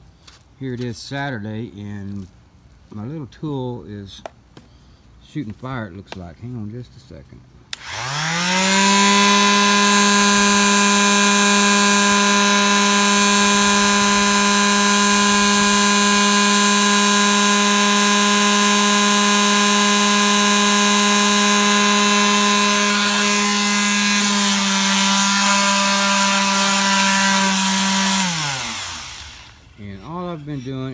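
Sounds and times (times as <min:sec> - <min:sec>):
electric sander motor whine: 0:07.8 - 0:30.9.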